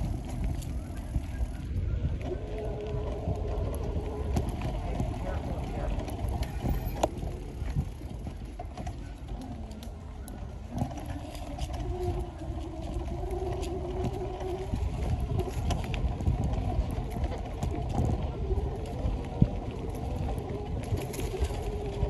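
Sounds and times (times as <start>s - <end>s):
bicycle tyres rolling over dirt: 0.0s - 22.0s
bike clicks and rattles: 0.0s - 22.0s
wind rumbling on microphone: 0.0s - 22.0s.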